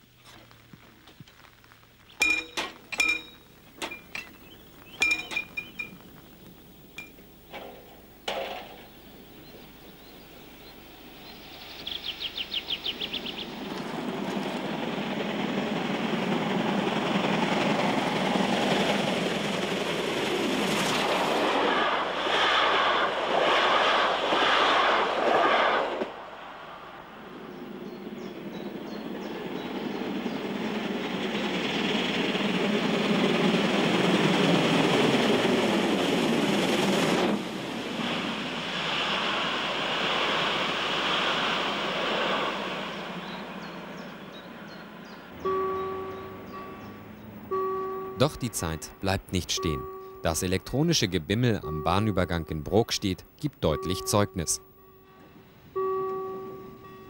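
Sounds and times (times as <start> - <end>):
rapid ringing: 2.2 - 6.2
rhythmic train wheel beats: 2.2 - 11.2, 12.5 - 26.1, 27.6 - 57.0
steam train passing: 2.2 - 57.0
metallic clinks and rattles: 5.0 - 6.0.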